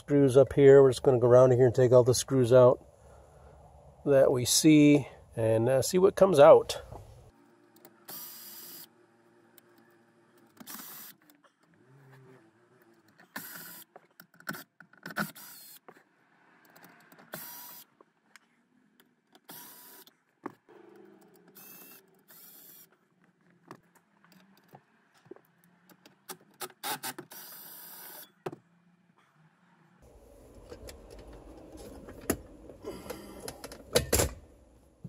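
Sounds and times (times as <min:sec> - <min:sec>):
screws and plastic clicking: 0:12.8 - 0:16.0.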